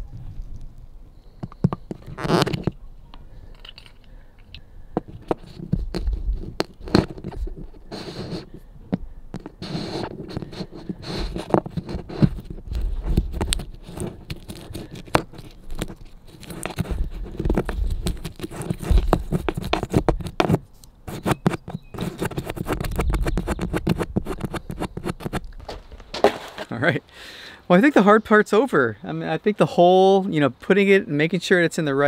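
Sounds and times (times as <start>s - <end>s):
drill bit scraping and clicking: 9.3s - 25.6s.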